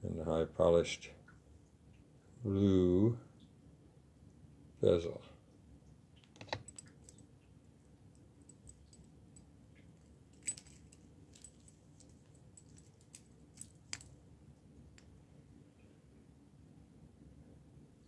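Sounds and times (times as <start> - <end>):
metal watch bracelet clicking: 6.4 - 7.2, 8.5 - 9.5, 10.4 - 14.2.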